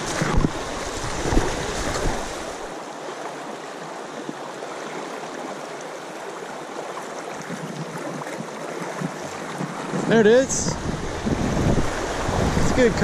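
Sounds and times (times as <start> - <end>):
river rushing over cobbles: 0.0 - 13.0
low microphone rumble: 10.6 - 12.8.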